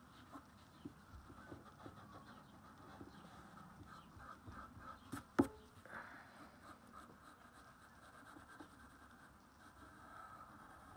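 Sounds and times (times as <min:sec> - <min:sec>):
pencil scratching on paper: 0:00.1 - 0:05.5, 0:06.6 - 0:10.9.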